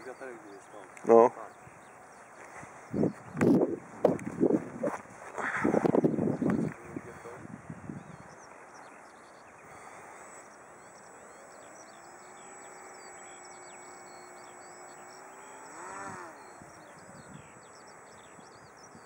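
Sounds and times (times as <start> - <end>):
faint steady hum: 0.0 - 19.0
small birds chirping: 0.0 - 19.0
sound rising and falling in pitch: 10.4 - 19.0.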